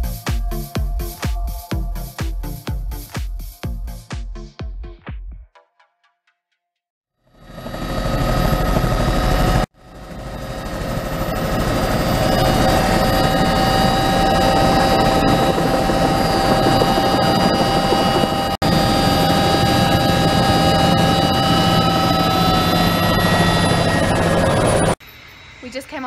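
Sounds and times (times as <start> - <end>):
helicopter rotor and engine din: 7.3 - 26.0
high whine: 7.6 - 26.0.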